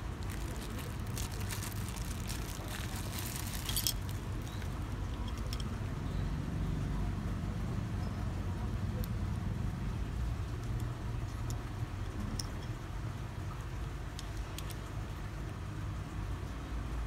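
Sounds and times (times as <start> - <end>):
plastic packaging crinkling: 0.0 - 5.6.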